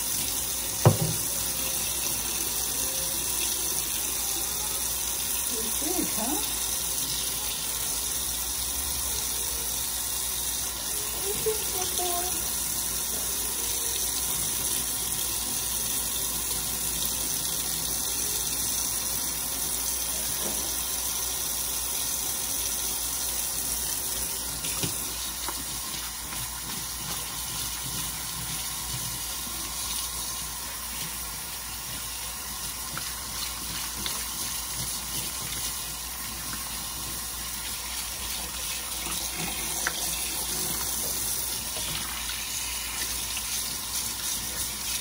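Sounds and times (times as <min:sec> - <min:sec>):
faucet running into metal sink: 0:00.0 - 0:45.0.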